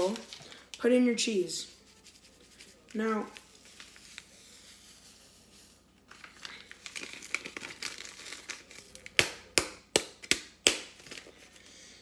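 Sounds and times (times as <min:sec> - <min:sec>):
foil packet crinkling: 0:03.3 - 0:04.4, 0:06.1 - 0:09.2.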